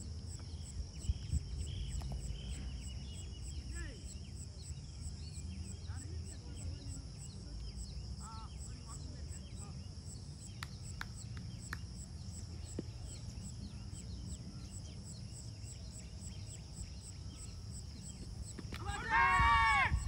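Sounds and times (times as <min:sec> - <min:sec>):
faint high insect chirping: 0:00.0 - 0:20.0
person shouting: 0:18.8 - 0:20.0.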